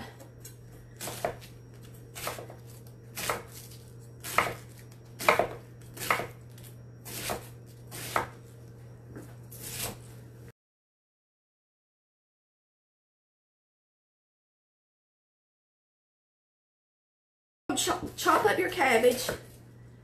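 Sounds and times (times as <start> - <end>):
low steady hum: 0.0 - 10.5
knife chopping cabbage on wooden board: 1.0 - 1.5, 2.2 - 2.6, 3.2 - 6.4, 7.1 - 8.4, 9.6 - 10.0.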